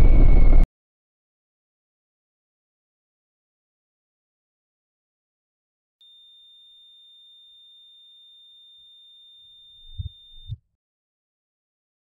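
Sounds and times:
high-pitched electronic tone: 6.0s - 10.6s.

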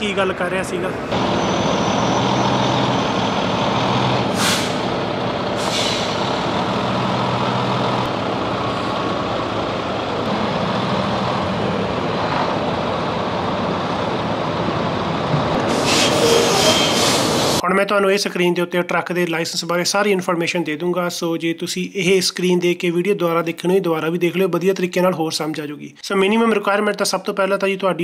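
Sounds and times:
truck diesel engine running: 1.0s - 16.1s
air brake hisses: 4.3s - 4.9s, 5.6s - 6.3s, 15.6s - 17.6s.

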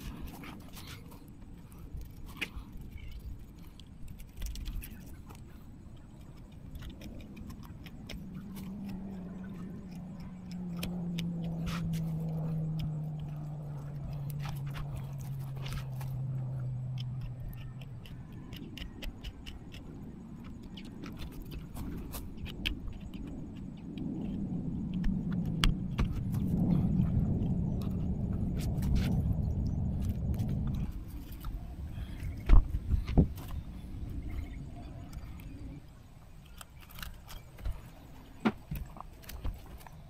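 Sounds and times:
passing engine hum: 6.9s - 36.3s.

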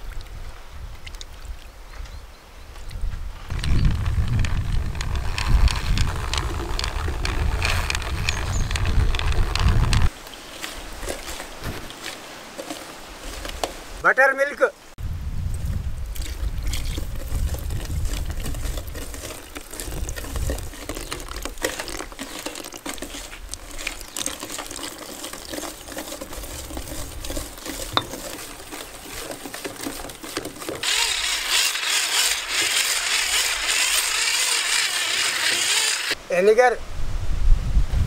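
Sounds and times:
whisk stirring batter in bowl: 16.2s - 35.7s
electric hand mixer whirring: 17.4s - 36.2s.

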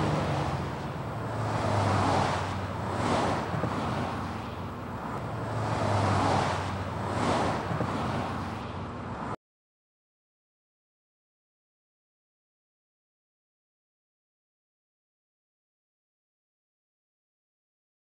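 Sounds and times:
vehicles passing: 0.0s - 9.4s.

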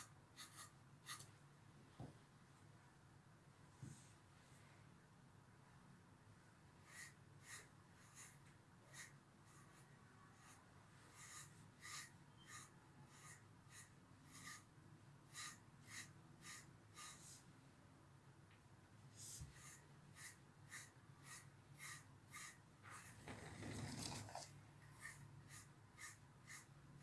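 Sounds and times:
brush strokes through dog fur: 19.1s - 26.7s.

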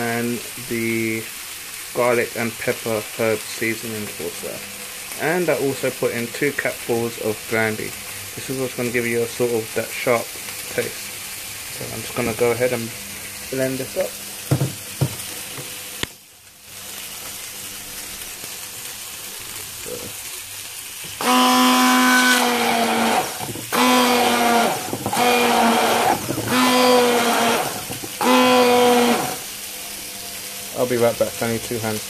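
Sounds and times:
frying sizzle: 0.0s - 32.0s
stick blender motor whine: 21.0s - 29.6s.

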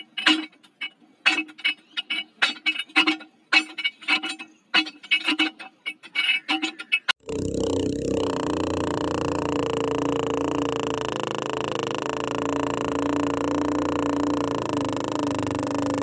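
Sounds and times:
hand pump squeaks and clicks: 0.0s - 7.2s.

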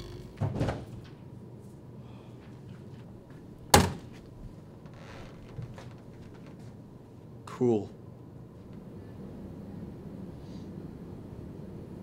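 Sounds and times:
door slamming shut: 0.0s - 0.9s, 3.7s - 4.1s
low room hum: 0.0s - 12.0s.

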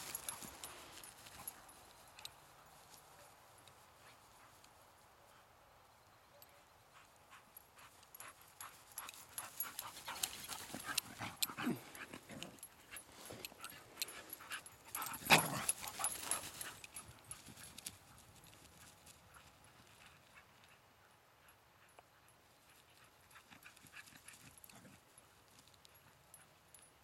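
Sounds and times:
rustling and clicking: 0.0s - 4.8s, 7.5s - 20.8s
dogs panting and whining: 7.0s - 17.0s.

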